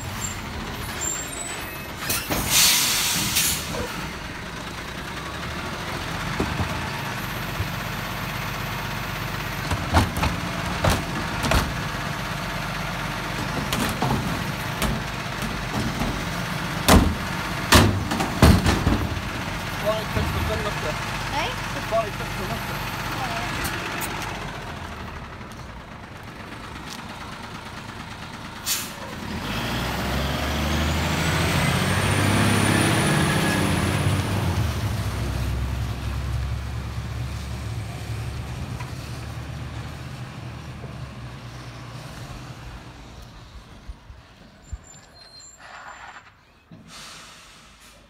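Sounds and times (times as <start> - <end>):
diesel truck engine revving: 0.0 - 44.0
air brake hiss: 2.0 - 3.9, 28.6 - 29.0, 46.8 - 48.0.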